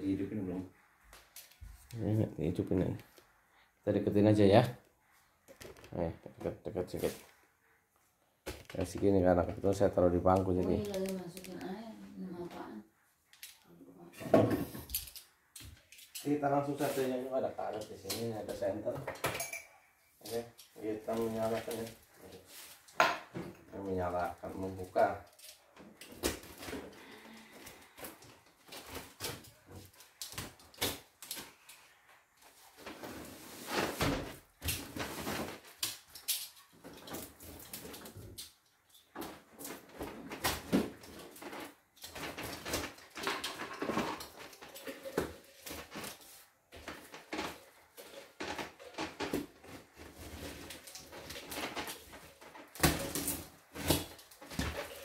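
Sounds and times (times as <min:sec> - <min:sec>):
bubble wrap and plastic crinkling: 0:08.6 - 0:13.8, 0:20.2 - 0:22.9, 0:23.7 - 0:55.0.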